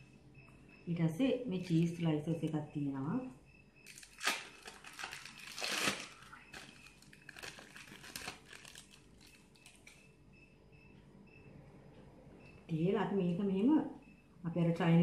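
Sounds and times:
plastic wrapper crinkling: 3.8 - 10.0.

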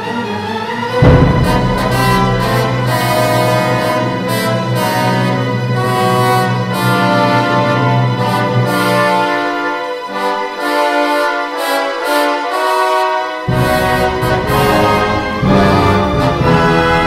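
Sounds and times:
low instruments: 1.0 - 9.7
orchestra playing held chords: 1.0 - 17.0.

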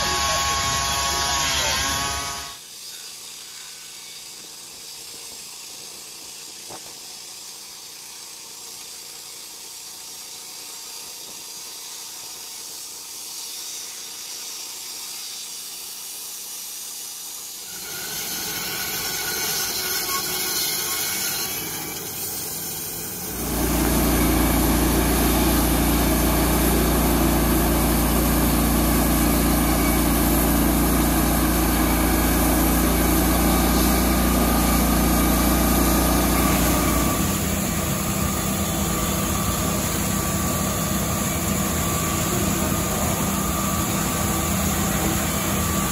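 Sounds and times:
band saw cutting logs: 0.0 - 15.8, 17.4 - 45.9
engine with low hum: 23.1 - 45.9.

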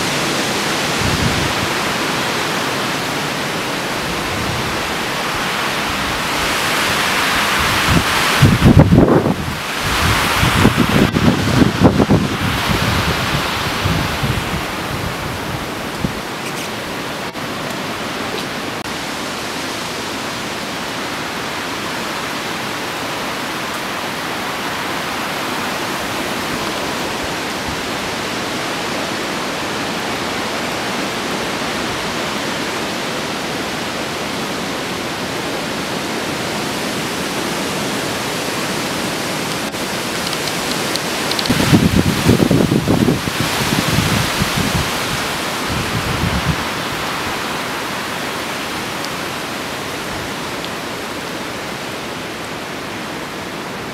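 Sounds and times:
wind buffeting microphone: 0.0 - 3.0, 3.8 - 19.0, 36.5 - 49.3
hurricane wind through trees: 0.0 - 53.9
rain: 0.0 - 53.9.

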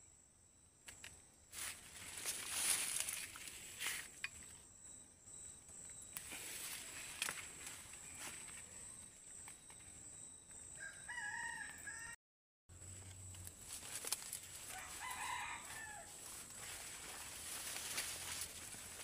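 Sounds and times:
rooster crowing: 10.7 - 12.2, 14.6 - 16.3.

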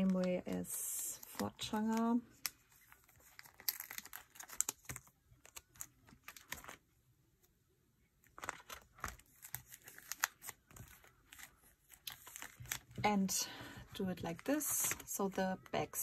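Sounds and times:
plastic sleeves rustling and clicking: 0.0 - 7.5, 8.2 - 16.0.

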